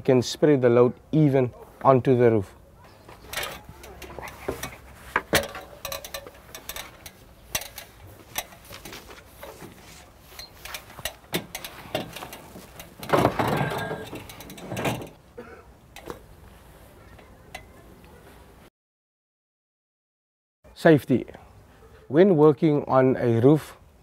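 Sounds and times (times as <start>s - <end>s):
metal ladder clanking and rattling: 2.9s - 15.2s
ladder scraping on roof: 3.0s - 15.2s.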